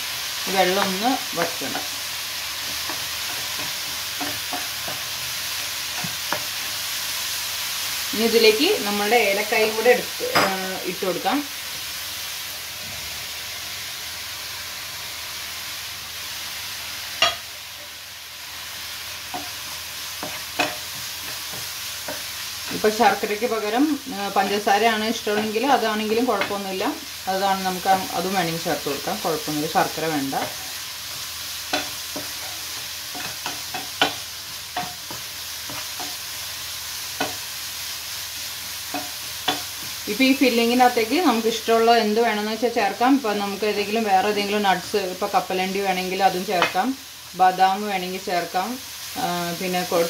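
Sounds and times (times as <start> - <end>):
filling sizzling in frying pan: 0.0 - 50.0.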